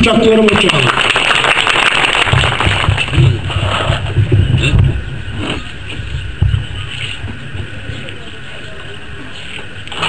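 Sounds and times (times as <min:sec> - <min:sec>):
people clapping: 0:00.0 - 0:03.3
microphone handling thumps: 0:02.3 - 0:08.0.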